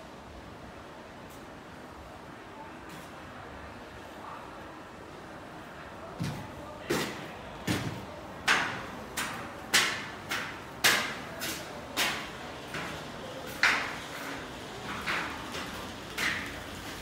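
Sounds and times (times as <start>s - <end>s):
footsteps on metal stairs: 6.2s - 16.6s.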